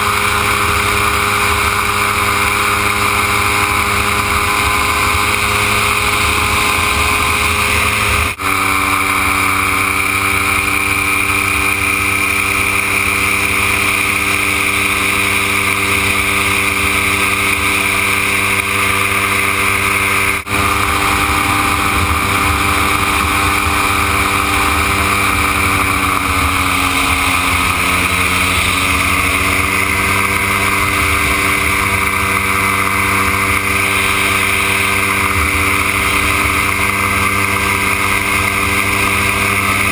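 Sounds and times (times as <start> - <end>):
gyroplane engine and propeller: 0.0 - 39.9
wind rush: 0.0 - 39.9.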